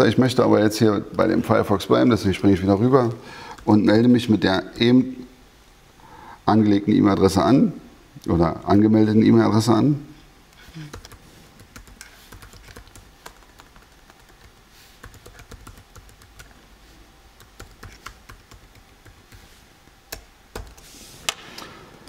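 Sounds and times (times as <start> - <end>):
laptop keyboard typing: 10.9 - 16.6, 17.4 - 19.5, 20.1 - 20.9.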